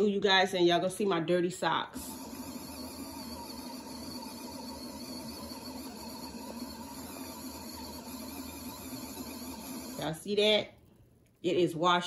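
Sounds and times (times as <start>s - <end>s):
washing machine motor hum: 1.7s - 10.5s.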